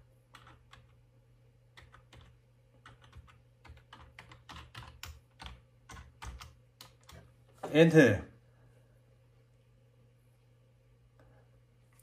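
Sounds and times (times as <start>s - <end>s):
faint low hum: 0.0s - 12.0s
keyboard keys tapping: 0.3s - 1.0s, 1.7s - 7.3s.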